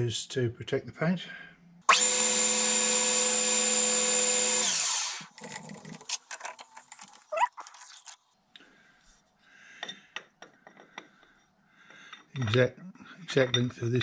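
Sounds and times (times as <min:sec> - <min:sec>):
metal lathe whining: 0:01.9 - 0:05.3.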